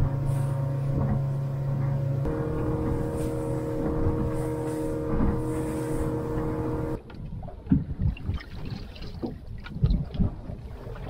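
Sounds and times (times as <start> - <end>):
outboard motor running: 0.0 - 7.1
water against hull: 0.0 - 11.0
wind: 0.0 - 11.0
knocks on boat: 0.9 - 3.0, 3.8 - 4.4, 5.0 - 5.4.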